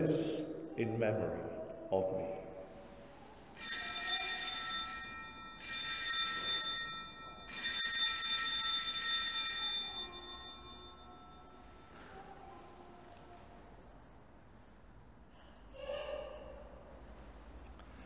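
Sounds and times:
altar bells ringing: 3.6s - 12.0s.

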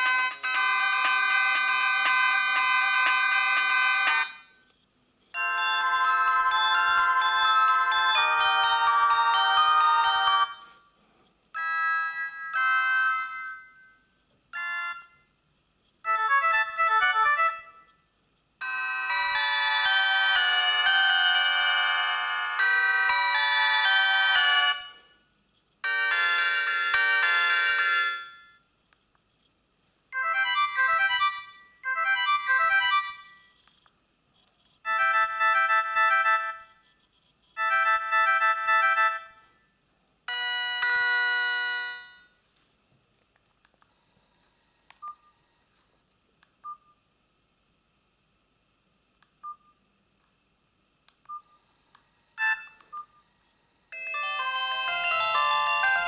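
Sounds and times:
electronic ringtone melodies: 0.0s - 4.5s, 5.4s - 10.8s, 11.6s - 14.0s, 14.6s - 15.2s, 16.1s - 17.9s, 18.6s - 25.1s, 25.8s - 28.6s, 30.2s - 33.5s, 34.8s - 36.8s, 37.6s - 39.5s, 40.3s - 42.3s, 53.9s - 56.0s.

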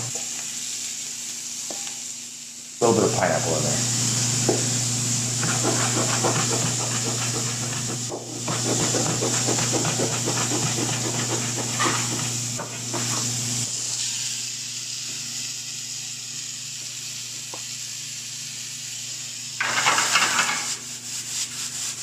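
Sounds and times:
vegetables sizzling in a skillet: 0.0s - 22.0s
steady hum: 1.8s - 16.7s
knife chopping on plastic board: 5.4s - 12.3s.

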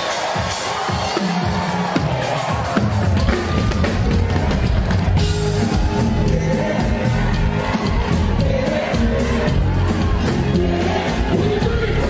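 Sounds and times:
live afrobeats band: 0.0s - 12.0s
heavy bass line: 3.1s - 12.0s.

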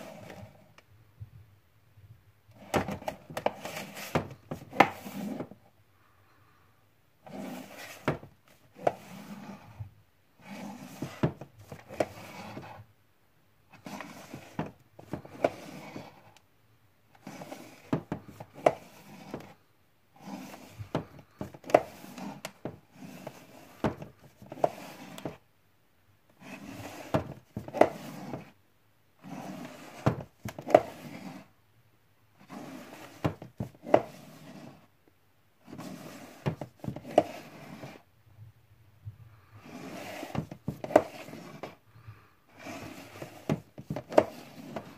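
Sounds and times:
cases scraping on shelf: 0.0s - 0.7s, 2.5s - 5.6s, 7.2s - 12.8s, 13.7s - 16.3s, 17.2s - 19.6s, 20.2s - 25.4s, 26.4s - 28.6s, 29.2s - 31.5s, 32.4s - 34.9s, 35.6s - 38.0s, 39.6s - 41.8s, 42.5s - 44.9s.

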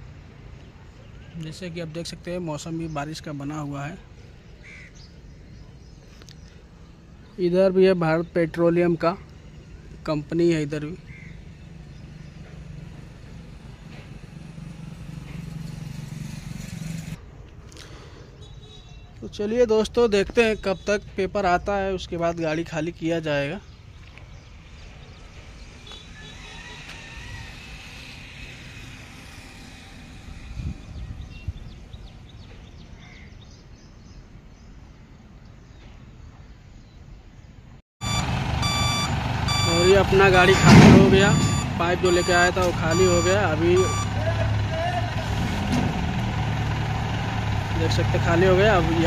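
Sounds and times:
road traffic: 0.0s - 49.0s
motorcycle passing: 11.0s - 17.2s, 25.2s - 32.4s, 38.0s - 49.0s.

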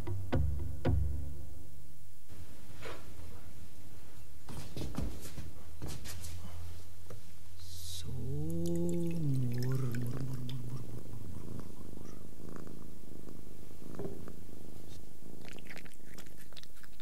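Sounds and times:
cat purring: 7.8s - 17.0s.

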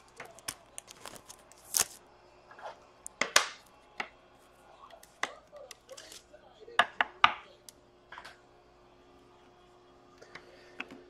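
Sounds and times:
trading cards clicking and snapping: 0.0s - 2.0s.

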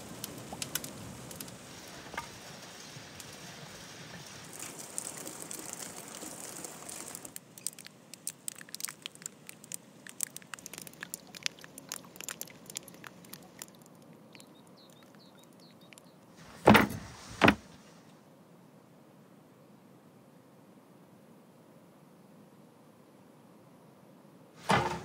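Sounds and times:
water dripping from eaves: 0.0s - 16.3s.

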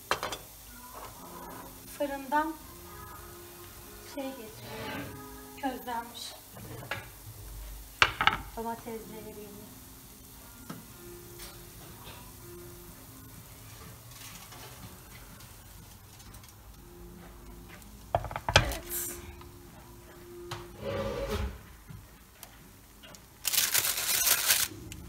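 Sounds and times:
baking paper crinkling: 23.4s - 24.8s.

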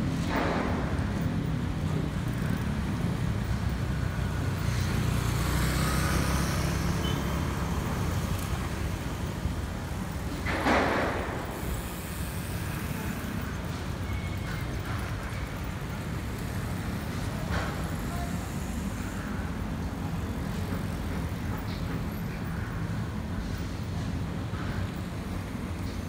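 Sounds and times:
road traffic rumble: 0.0s - 26.0s
rush of passing vehicle: 2.3s - 14.0s.

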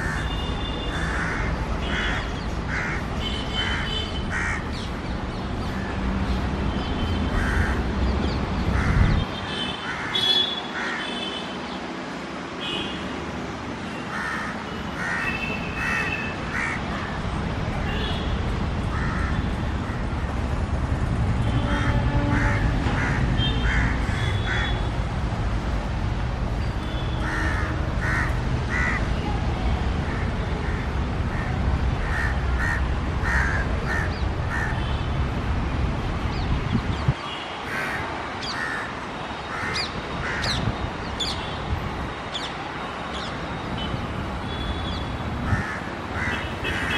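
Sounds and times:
crows cawing: 0.0s - 0.3s, 0.9s - 4.8s, 7.3s - 7.8s, 9.8s - 10.2s, 10.8s - 11.1s, 14.1s - 17.2s, 18.9s - 20.0s, 22.4s - 24.8s, 27.2s - 29.0s, 30.1s - 34.8s, 37.7s - 38.9s, 39.5s - 40.6s, 45.5s - 46.9s.

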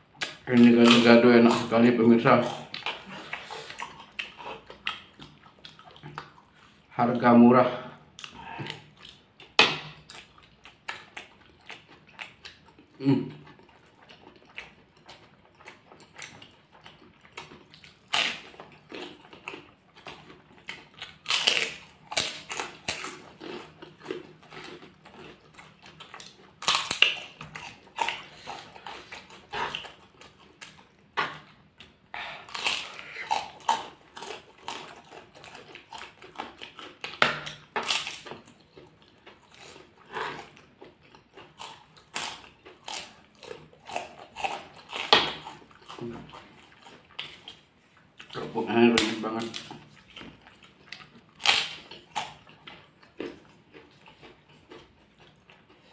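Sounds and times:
chewing food: 0.1s - 6.9s, 8.0s - 55.9s
crackers crunching: 0.2s - 6.8s, 8.2s - 55.9s.

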